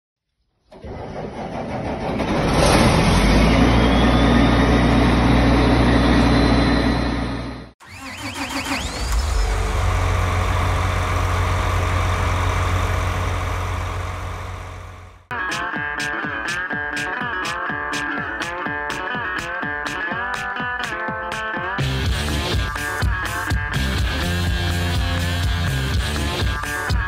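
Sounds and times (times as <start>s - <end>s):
engine whine: 0.8s - 15.3s
tractor diesel engine running: 0.8s - 15.3s.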